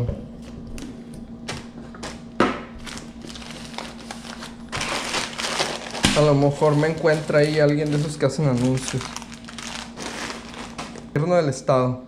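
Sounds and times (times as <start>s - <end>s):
faint steady hum: 0.0s - 12.0s
groceries knocking on countertop: 1.5s - 3.4s, 4.8s - 7.0s
plastic food bags rustling: 1.5s - 11.2s.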